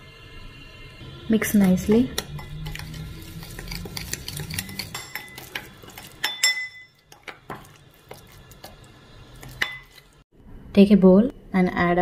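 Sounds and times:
metal spoon scraping bowl: 1.4 - 10.2
spoon clinking: 2.2 - 8.8, 9.4 - 10.1.

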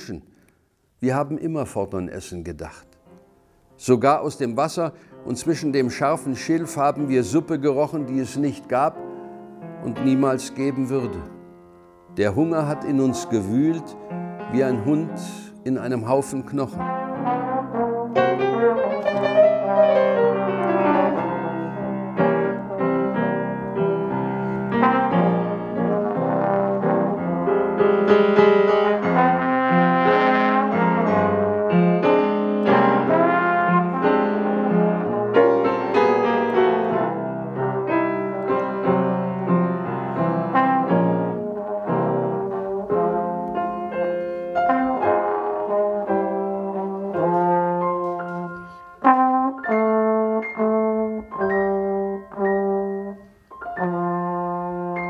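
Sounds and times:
piano chords: 2.2 - 55.0
trombone notes: 12.1 - 55.0.

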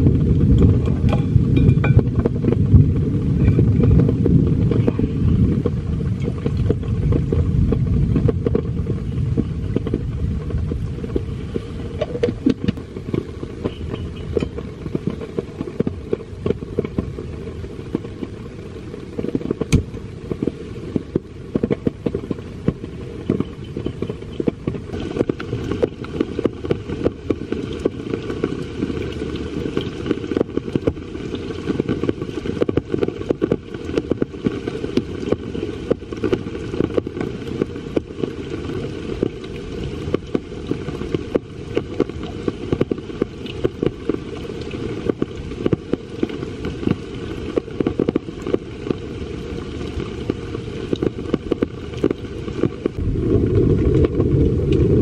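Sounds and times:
heavy rain drumming on tent: 0.0 - 55.0.

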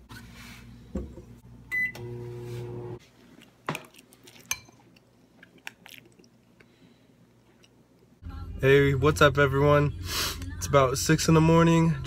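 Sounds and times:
microwave oven humming: 0.9 - 3.0
microwave keypad beep: 1.7 - 2.1.

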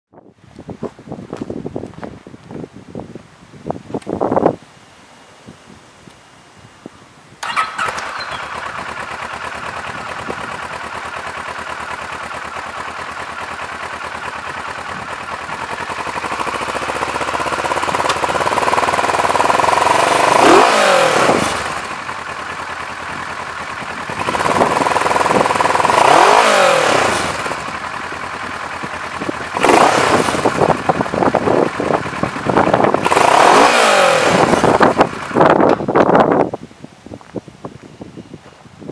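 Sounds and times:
motorcycle engine starting: 7.3 - 36.6
motorcycle engine idling and revving: 7.4 - 36.6.

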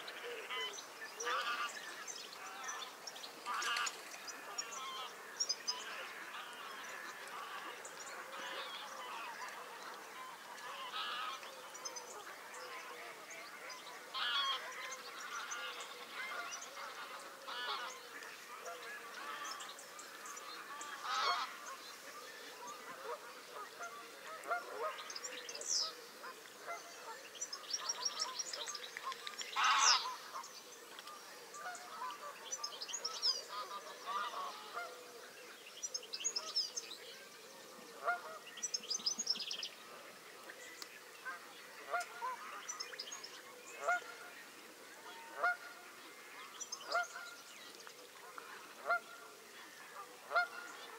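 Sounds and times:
geese honking: 0.2 - 1.8, 3.4 - 11.5, 14.1 - 25.2, 29.0 - 30.4, 33.4 - 35.0, 38.0 - 38.4, 41.2 - 42.8, 43.8 - 44.4, 45.0 - 47.4, 48.3 - 50.9.

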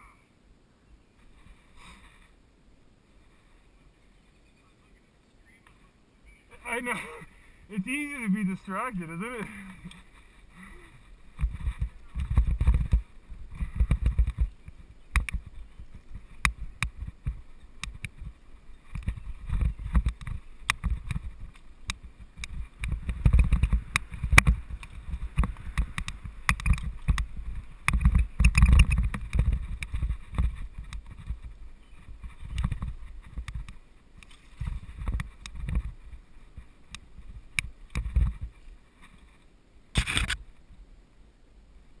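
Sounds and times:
wind rumble on microphone: 9.7 - 40.9
bike clicks and rattles: 11.4 - 39.3.

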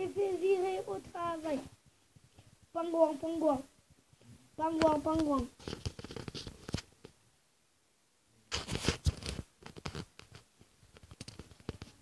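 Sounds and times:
scraping rustle: 5.0 - 6.9, 8.5 - 12.0.

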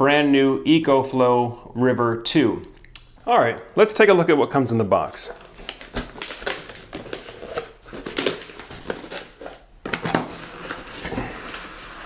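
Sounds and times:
cardboard scraping and rustling: 5.3 - 12.0
cardboard box being opened: 5.5 - 12.0.

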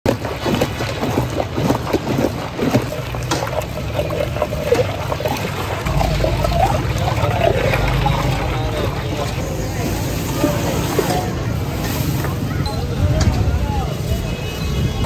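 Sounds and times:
mug scooping through liquid: 0.1 - 9.4
liquid sloshing in metal pot: 0.1 - 12.5.

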